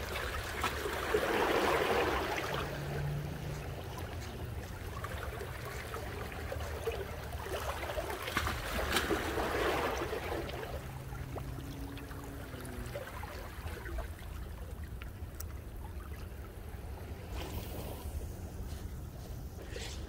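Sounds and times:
small waves lapping against rocks: 0.0 - 20.0
steady low rumble: 10.5 - 20.0.

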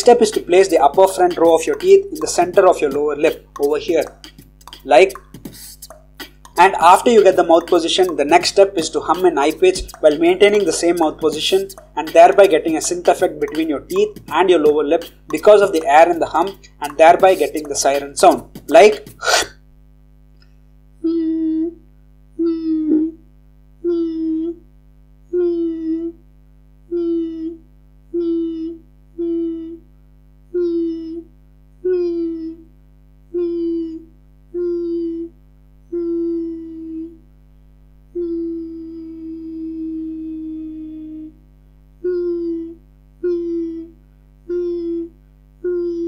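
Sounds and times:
beatbox hummed siren notes: 0.0 - 19.6, 20.4 - 37.3, 38.0 - 41.4, 42.0 - 46.0.

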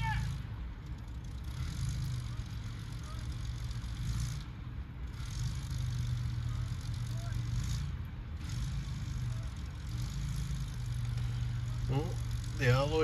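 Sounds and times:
heavy vehicle engines rumbling: 0.0 - 13.0.

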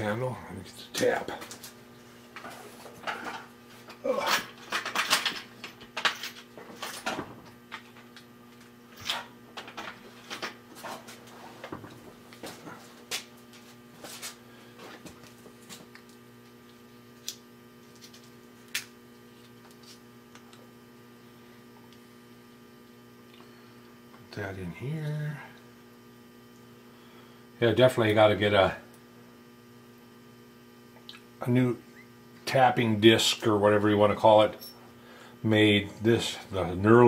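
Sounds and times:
mains hum: 0.0 - 37.0.

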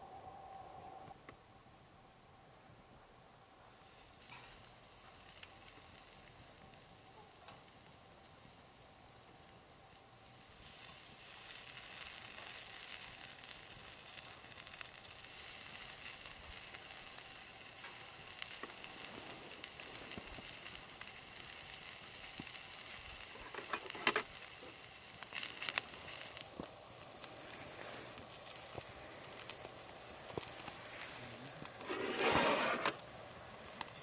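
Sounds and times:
meat sizzling on grill: 3.6 - 34.0
fat crackling: 10.0 - 34.0.

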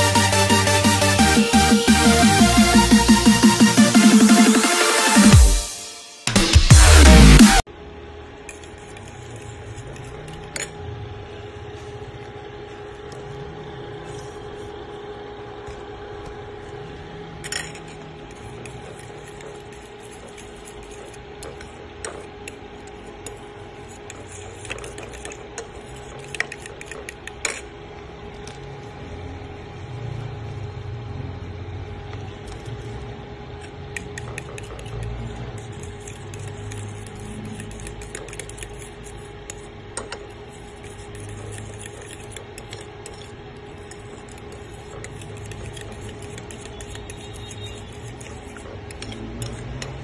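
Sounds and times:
steady hum: 0.0 - 50.0
spoon stirring in a bowl: 8.4 - 10.8, 15.7 - 27.8, 32.2 - 50.0.

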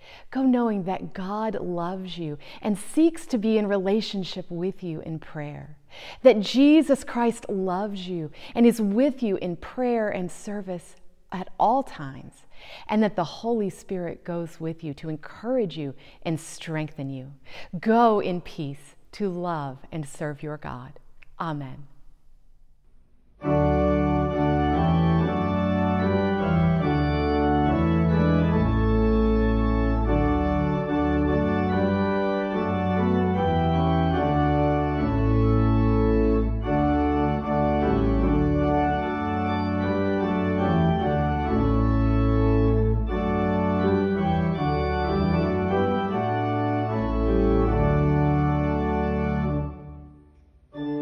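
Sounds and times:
organ chords: 23.4 - 51.0.

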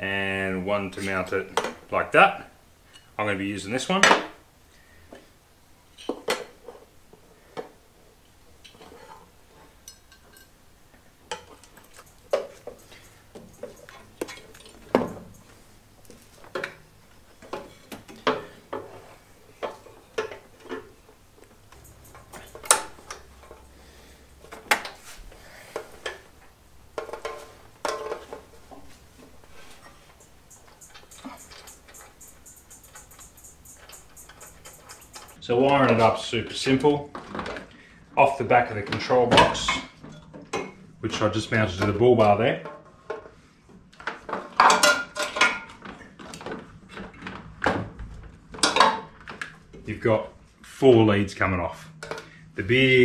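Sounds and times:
metal clinks and knocks: 11.3 - 16.8, 21.6 - 23.7, 27.0 - 35.4.

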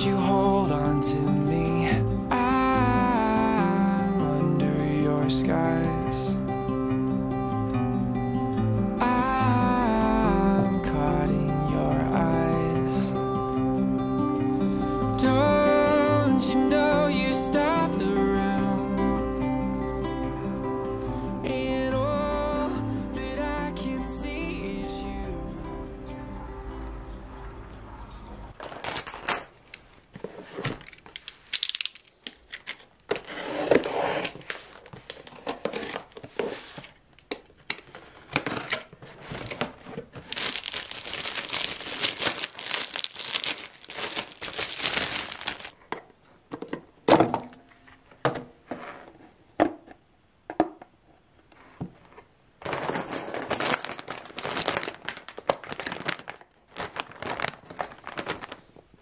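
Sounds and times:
plastic packaging crinkling: 28.5 - 37.0, 37.8 - 45.8, 52.6 - 59.0
clicks and knocks of handled items: 30.1 - 40.4.

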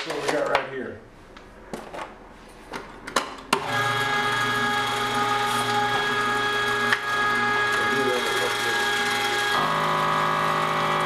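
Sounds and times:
meat grinder running: 3.6 - 11.0.

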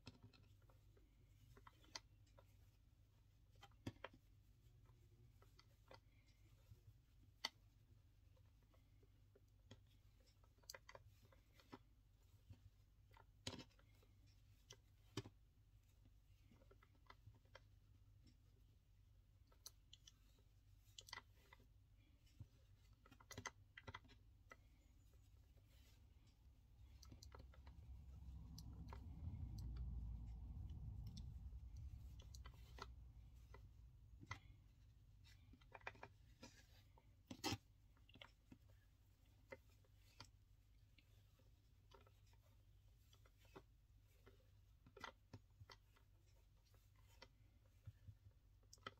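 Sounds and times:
faint clicks and taps: 0.0 - 48.9
low room hum: 0.0 - 48.9
low hum: 24.8 - 35.4.

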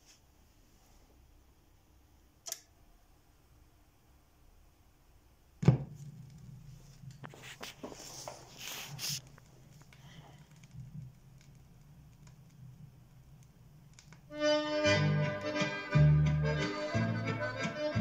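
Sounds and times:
record hum crackle and hiss: 0.0 - 16.6
click: 2.4 - 2.7
stylus dropping onto record: 5.6 - 6.6.

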